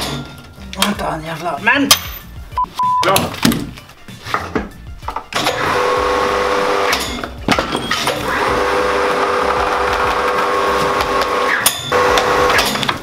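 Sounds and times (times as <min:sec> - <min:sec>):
electric hoist motor humming: 0:05.4 - 0:07.2, 0:08.2 - 0:12.9.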